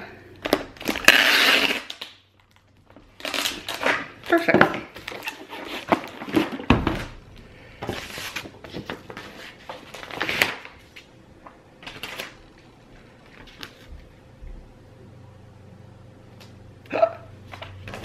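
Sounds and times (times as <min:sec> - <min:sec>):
paper rustling and sliding: 0:07.8 - 0:11.1.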